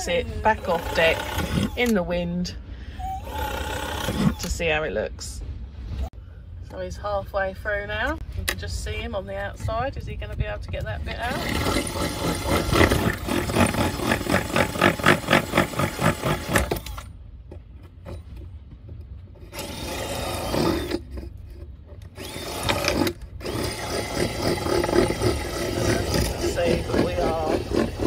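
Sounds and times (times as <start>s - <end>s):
power drill cutting wood: 0.0s - 1.9s, 3.0s - 4.5s, 11.3s - 17.0s, 19.5s - 21.0s, 22.2s - 28.0s.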